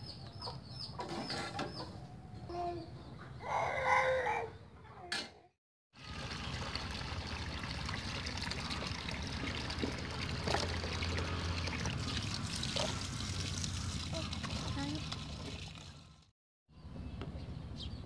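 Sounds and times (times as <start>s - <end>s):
water pouring into plastic tub: 6.0s - 16.3s.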